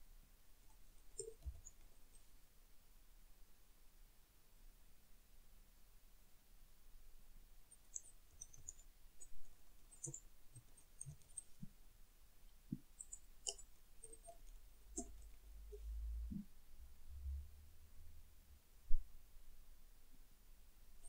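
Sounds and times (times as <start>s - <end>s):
keyboard typing: 7.8s - 11.6s.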